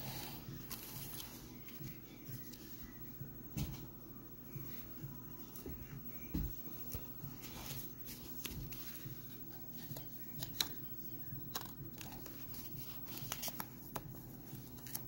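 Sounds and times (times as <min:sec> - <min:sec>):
steady low hum: 0:00.0 - 0:15.0
clicks and rustles of card: 0:11.5 - 0:15.0.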